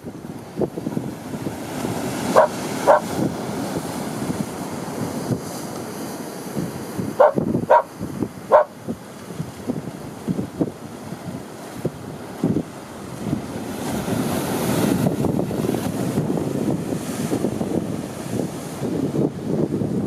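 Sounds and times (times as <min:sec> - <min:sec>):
sea wash: 0:00.0 - 0:20.0
wind on microphone: 0:00.0 - 0:20.0
sharp bark-like calls: 0:02.3 - 0:03.1, 0:07.2 - 0:07.9, 0:08.5 - 0:08.8.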